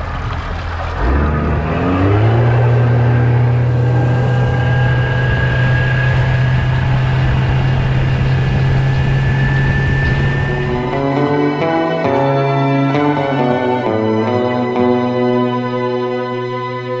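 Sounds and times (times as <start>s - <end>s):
outboard motor running hard: 0.0s - 13.1s.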